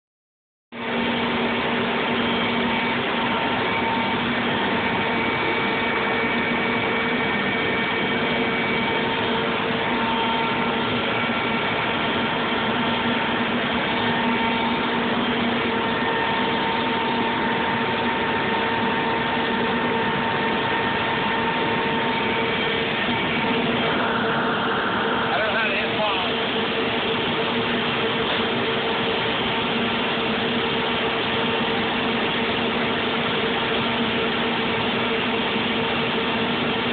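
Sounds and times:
shop machinery rushing drone: 0:00.8 - 0:36.9
steady humming tones: 0:00.8 - 0:36.9.

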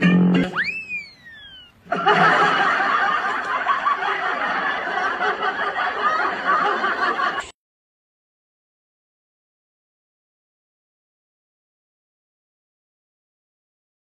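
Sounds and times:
falling slide whistle: 0:00.2 - 0:01.8
people laughing hard: 0:01.9 - 0:07.6.

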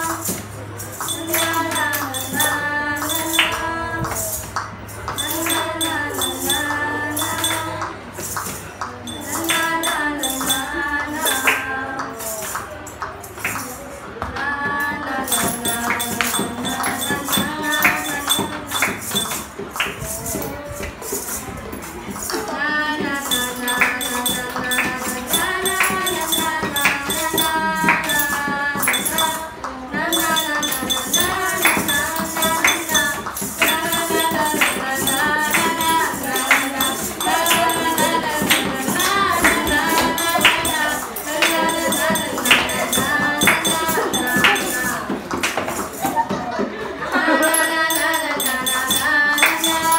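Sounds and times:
hand claps: 0:00.0 - 0:49.9
group singing a pop song: 0:08.9 - 0:12.4, 0:13.4 - 0:20.7, 0:22.2 - 0:49.9
tin can shaken and tapped: 0:15.3 - 0:49.9.

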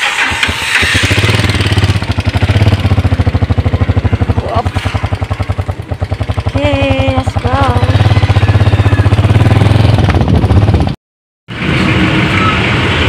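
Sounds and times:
motorcycle engine idling: 0:01.1 - 0:11.0.

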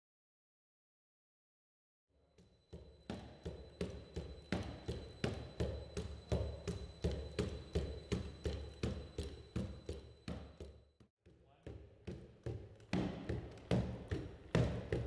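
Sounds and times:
robot feet striking a treadmill: 0:02.4 - 0:10.9, 0:11.7 - 0:15.0
steady low hum: 0:02.4 - 0:10.9.

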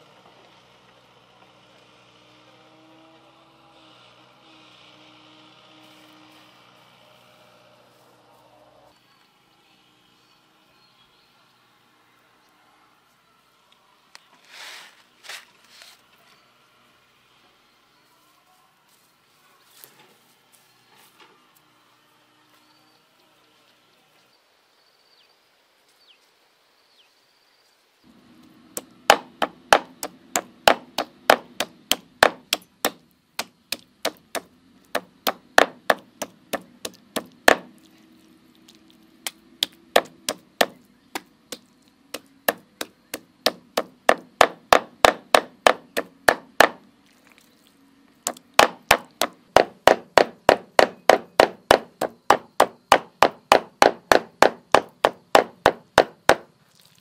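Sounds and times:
knife chopping meat on wood: 0:29.1 - 0:37.7, 0:39.3 - 0:41.6, 0:48.3 - 0:56.4.

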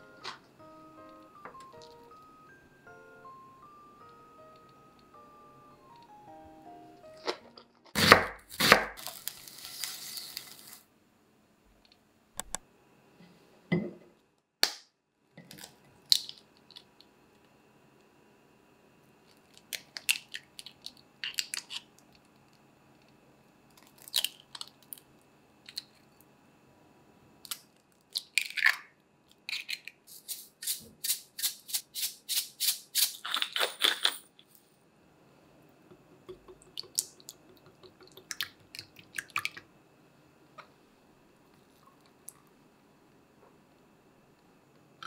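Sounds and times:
eggshells cracking and tapping: 0:35.9 - 0:39.6.

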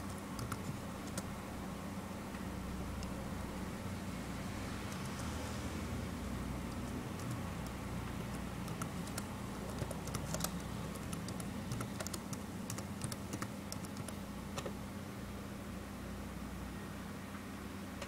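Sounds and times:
steady low hum: 0:00.0 - 0:18.0
keyboard key clicks: 0:06.7 - 0:14.7.

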